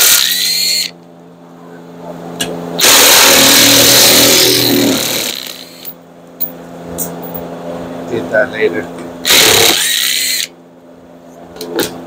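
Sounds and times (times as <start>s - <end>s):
power tool running: 0.0s - 1.0s, 2.8s - 5.9s, 9.2s - 10.6s.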